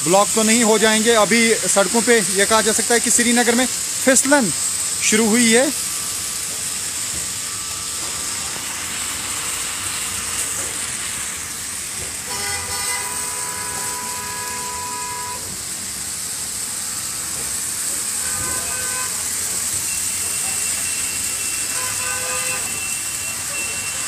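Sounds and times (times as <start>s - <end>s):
cars passing on wet road: 0.0s - 24.0s
vehicle horn: 12.2s - 15.6s, 18.0s - 19.5s, 20.4s - 24.0s.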